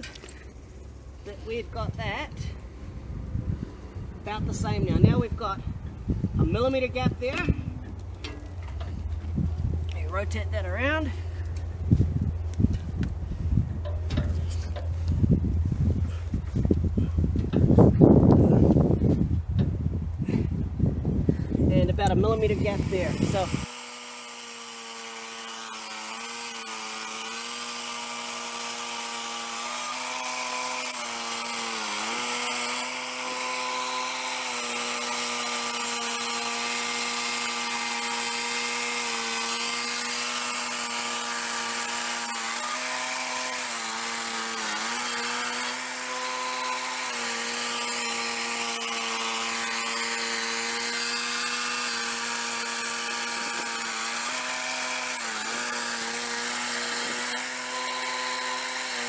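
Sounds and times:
sawmill blade cutting log: 0:22.0 - 0:59.0.

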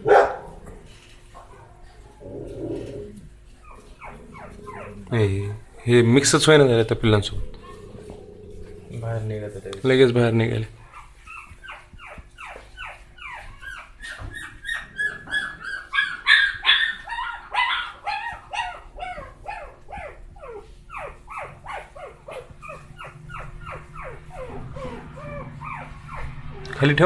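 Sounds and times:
puppies whining and yelping: 0:01.3 - 0:05.7, 0:07.4 - 0:08.9, 0:10.8 - 0:26.9.

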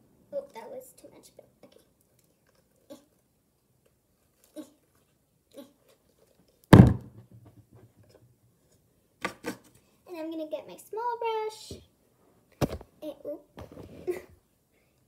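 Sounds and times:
loud thump with ring: 0:06.7 - 0:07.2.

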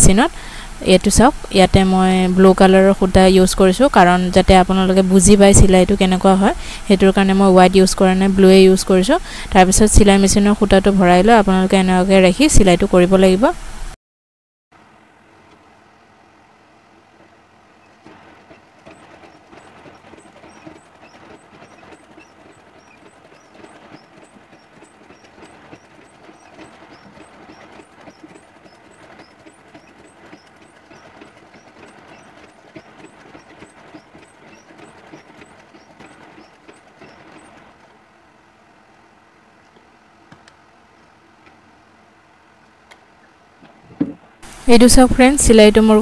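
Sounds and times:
sewing machine stitching: 0:17.8 - 0:38.0.

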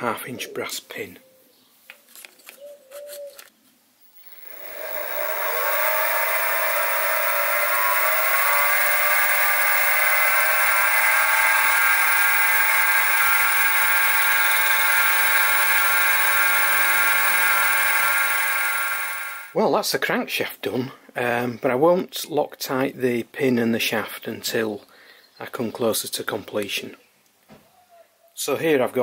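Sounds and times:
mill motor whining: 0:04.0 - 0:19.6
drill bit boring metal: 0:04.1 - 0:19.6.

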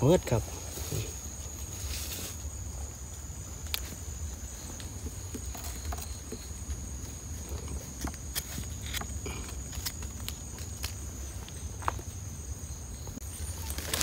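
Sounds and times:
night insects chirring: 0:00.0 - 0:14.0
clicks and rustles: 0:04.7 - 0:12.1.

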